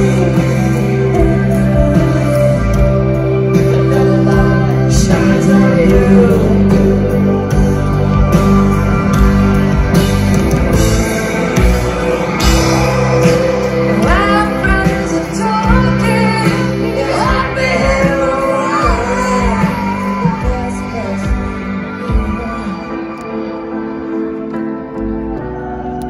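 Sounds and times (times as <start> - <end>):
woman singing lead vocal: 0.0 - 8.2, 12.4 - 23.3
live rock band through speakers: 0.0 - 26.0.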